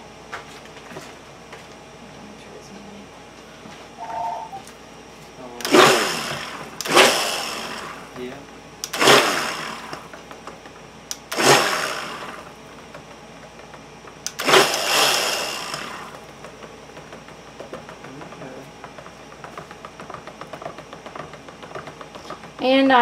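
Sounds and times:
blender head knocking and stirring: 5.6 - 23.0
stick blender whirring: 5.6 - 23.0.

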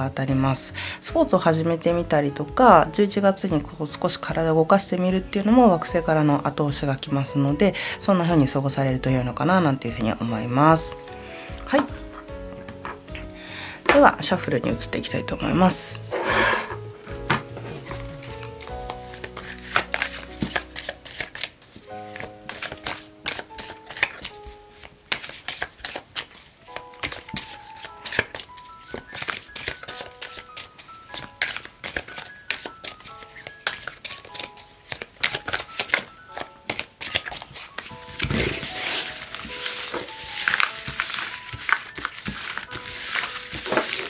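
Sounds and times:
gentle background music: 0.0 - 44.0
cards being shuffled: 16.1 - 44.0.

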